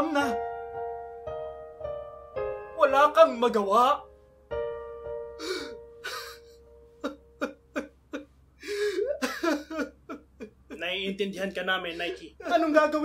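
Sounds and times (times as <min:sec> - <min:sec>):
held piano chord: 0:00.0 - 0:07.8
man sobbing: 0:05.4 - 0:11.0, 0:11.9 - 0:13.0.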